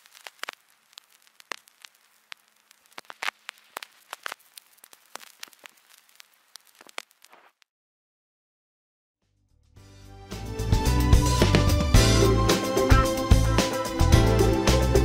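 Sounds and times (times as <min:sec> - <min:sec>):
vinyl crackles and pops: 0:00.0 - 0:07.7.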